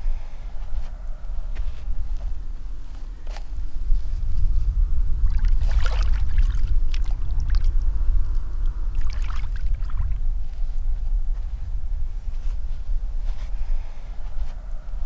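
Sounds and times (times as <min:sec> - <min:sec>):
steady low rumble: 0:00.0 - 0:15.0
pond water splashing: 0:05.3 - 0:07.7, 0:09.0 - 0:10.2.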